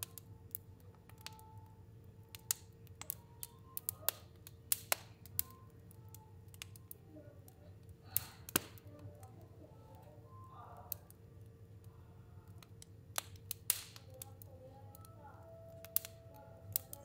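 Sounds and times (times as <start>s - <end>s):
fire crackling and popping: 0.0s - 17.0s.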